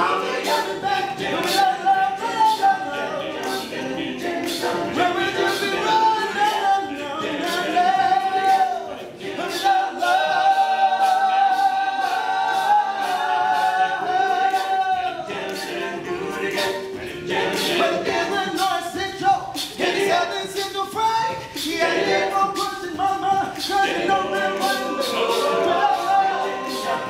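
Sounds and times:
male group singing in harmony: 0.0 - 27.0
vocal percussion beat: 0.0 - 27.0.

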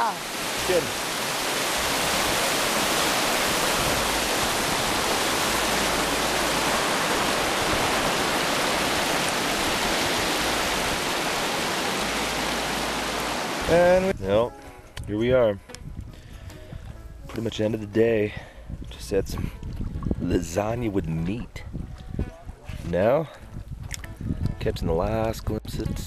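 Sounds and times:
water rushing over rocks: 0.0 - 14.1.

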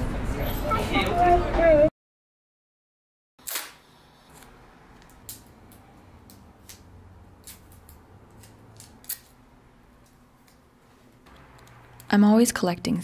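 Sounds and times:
tape pulled off: 3.4 - 5.5
fingers crinkling tape: 3.4 - 9.4.

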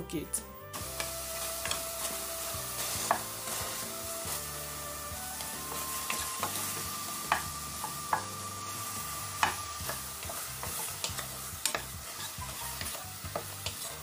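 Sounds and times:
steady hiss: 0.8 - 14.0
spoon scraping a saucepan: 5.4 - 8.2, 9.4 - 14.0.

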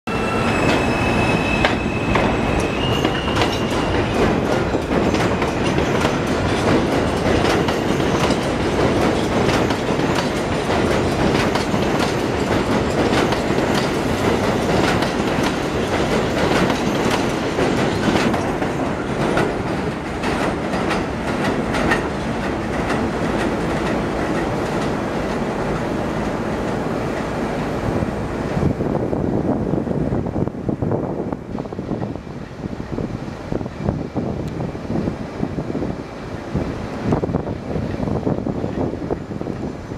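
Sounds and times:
high squeal: 0.1 - 4.4
rail joints clickety-clack: 0.1 - 39.9
train wheels rumbling on rail: 0.1 - 39.9.

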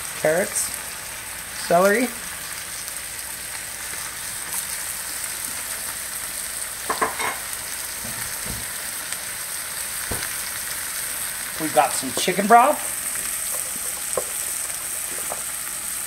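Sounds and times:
food sizzling in a frying pan: 0.0 - 16.0.

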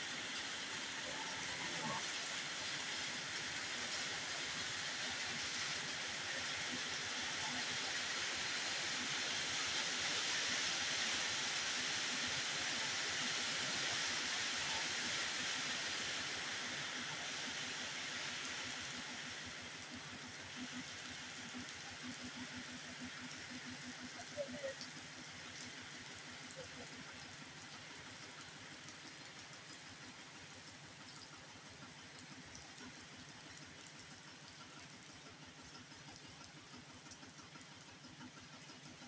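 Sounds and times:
steady rain on wet ground: 0.0 - 39.0.

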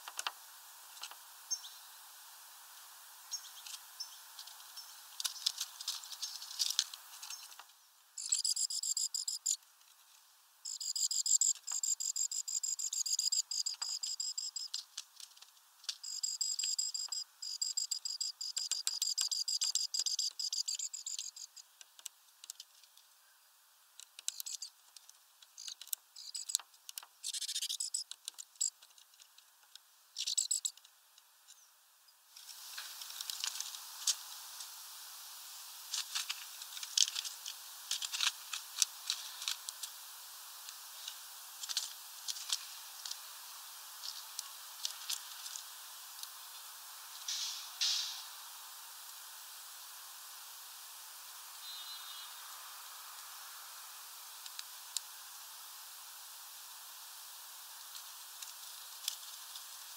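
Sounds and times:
birds pecking and cracking seeds: 3.3 - 23.1, 24.0 - 31.6, 32.4 - 46.7
high rapid insect-like trill: 8.2 - 9.6, 10.6 - 15.0, 15.9 - 21.7, 25.6 - 26.6, 27.2 - 28.8, 30.2 - 30.8.

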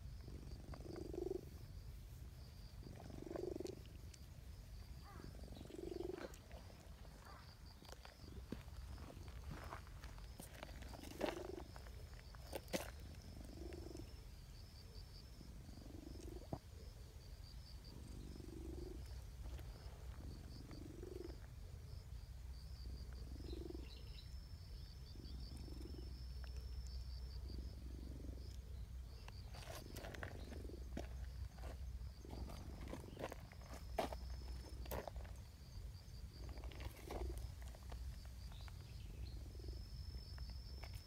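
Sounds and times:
cat purring: 0.3 - 1.6, 2.8 - 4.0, 5.1 - 7.3.

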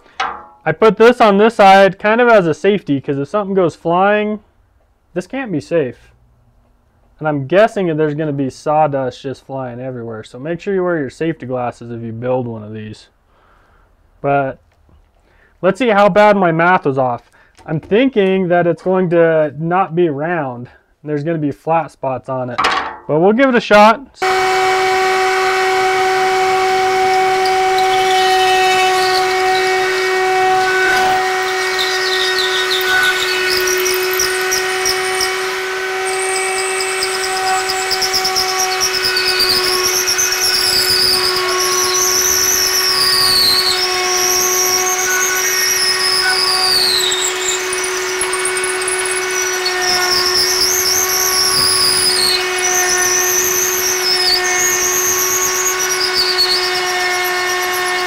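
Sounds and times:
high whine of wood being cut: 24.2 - 58.0
router whining: 24.2 - 58.0.

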